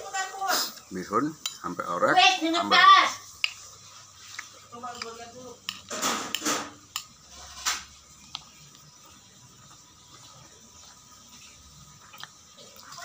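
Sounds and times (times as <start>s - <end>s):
sharp eating noise: 3.3s - 13.0s
quiet chewing: 3.4s - 13.0s
spoon clicking on plate: 4.9s - 7.2s.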